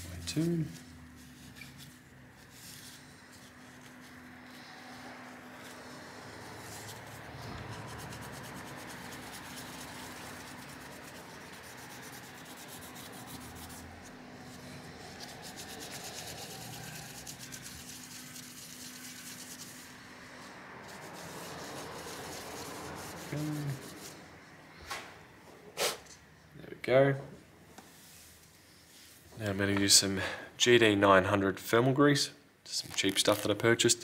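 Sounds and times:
tissue paper rubbing: 0.3s - 20.0s, 20.9s - 24.2s.

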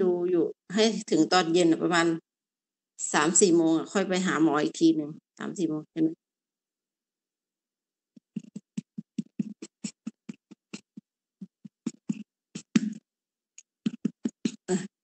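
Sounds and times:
cat panting: 8.3s - 12.7s.

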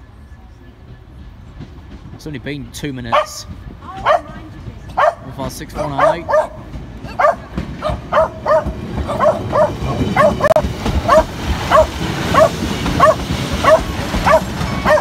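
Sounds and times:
diesel train rumbling past: 0.0s - 15.0s
dog barking: 3.1s - 3.4s, 4.0s - 4.4s, 5.0s - 15.0s.

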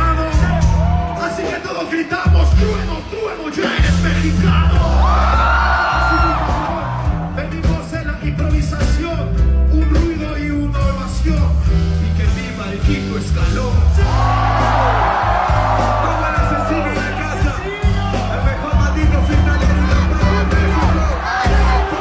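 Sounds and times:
rapper freestyling into microphone: 0.0s - 14.4s, 15.7s - 22.0s
hip-hop beat with heavy bass: 0.0s - 22.0s
crowd shouting: 3.4s - 7.4s, 14.0s - 22.0s.

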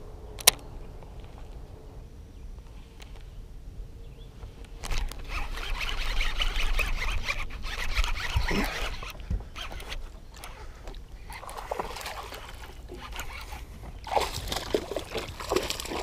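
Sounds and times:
fishing reel ratcheting: 4.8s - 10.5s, 12.4s - 13.6s.

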